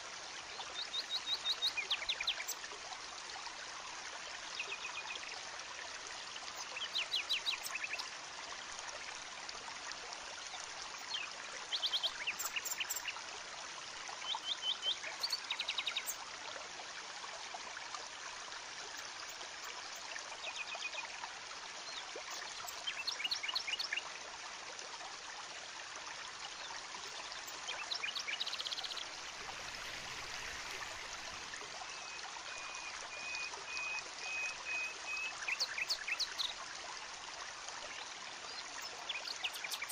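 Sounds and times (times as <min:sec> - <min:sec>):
steady hiss: 0:29.0 - 0:31.6.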